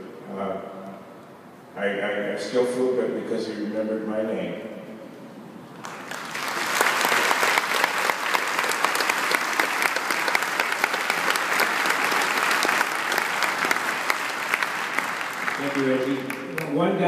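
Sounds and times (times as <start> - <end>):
audience applauding: 5.8 - 17.0.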